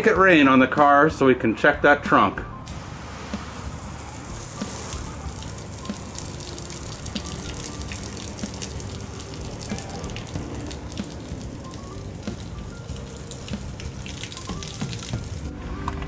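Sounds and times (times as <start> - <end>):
hose spray hissing: 2.7 - 15.5
water pattering on sheet metal: 2.7 - 15.5.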